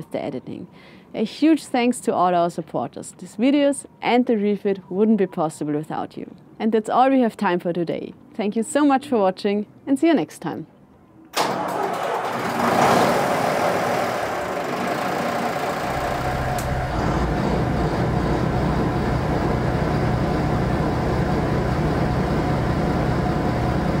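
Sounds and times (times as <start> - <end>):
diesel engine starting and running: 11.4 - 24.0.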